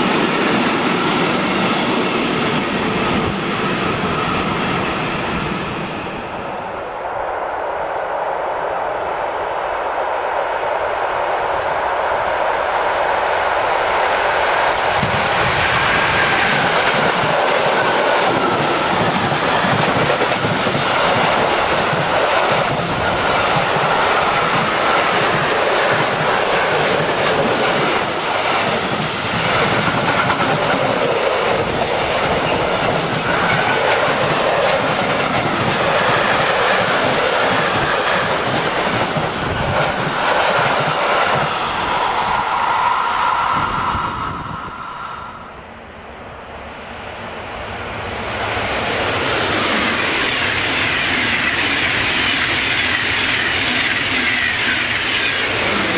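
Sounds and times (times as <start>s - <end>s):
train wheels rolling on rail: 0.0s - 55.9s
clickety-clack over rail joints: 14.6s - 41.6s
steady high tone: 41.5s - 47.0s.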